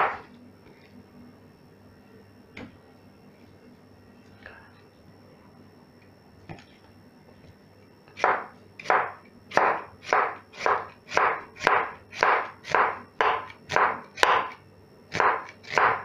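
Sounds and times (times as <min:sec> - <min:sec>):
knife slicing onion on wooden board: 0:08.2 - 0:16.0.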